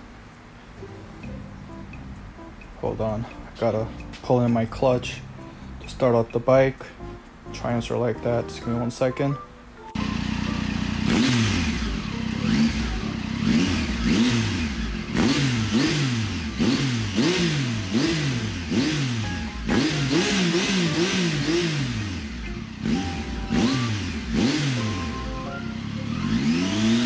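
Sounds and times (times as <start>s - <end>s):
motorcycle engine revving: 10.0s - 27.0s.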